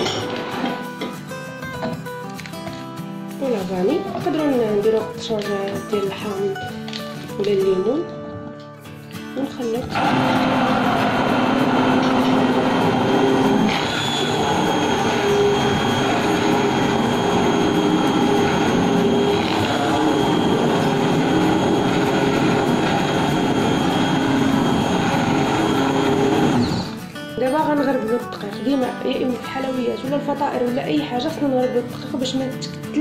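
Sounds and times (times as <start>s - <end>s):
immersion blender running: 9.9s - 27.0s.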